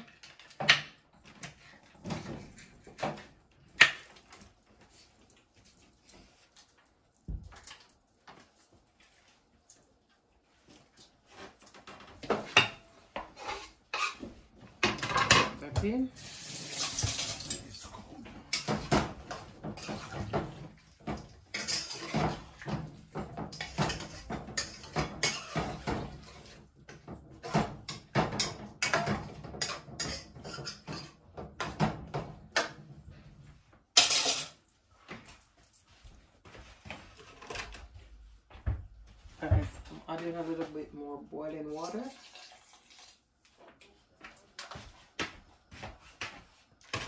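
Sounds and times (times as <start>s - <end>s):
metal spoon scraping cooking pot: 13.4s - 14.3s, 23.5s - 26.6s, 27.4s - 31.2s.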